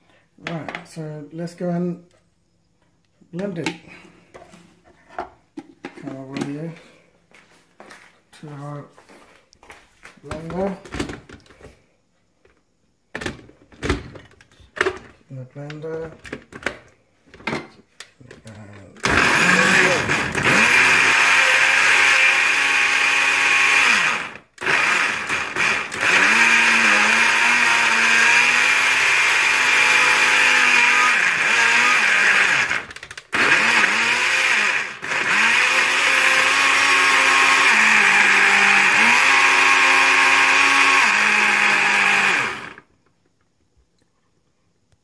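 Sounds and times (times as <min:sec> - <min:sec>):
blender motor running: 0:19.0 - 0:42.9.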